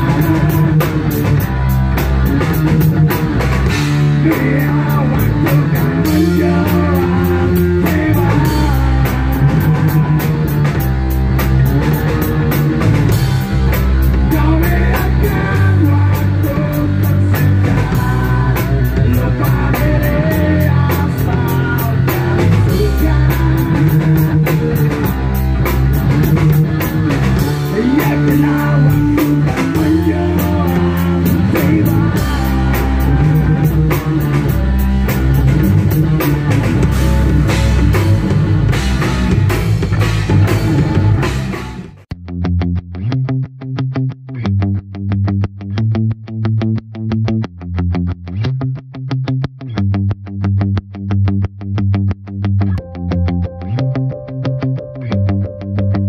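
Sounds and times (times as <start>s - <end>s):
person singing: 0.0s - 10.8s, 14.1s - 25.3s, 27.4s - 37.0s
drum kit beat: 0.0s - 42.1s
bass guitar: 0.0s - 56.0s
electric guitar: 0.0s - 56.0s.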